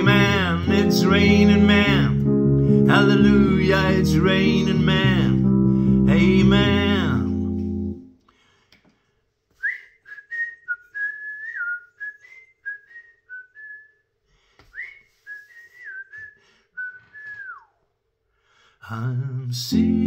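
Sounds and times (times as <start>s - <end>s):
man whistling a tune: 9.6s - 14.1s, 14.7s - 17.9s.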